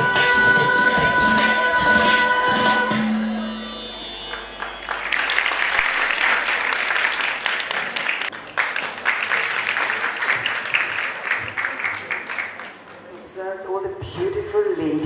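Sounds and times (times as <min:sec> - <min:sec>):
music: 0:00.0 - 0:06.6
audience applauding: 0:03.8 - 0:13.3.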